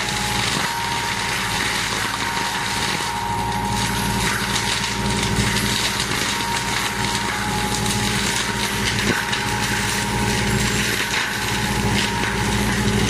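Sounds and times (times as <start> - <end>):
mulcher rotor high whine: 0.0 - 13.0.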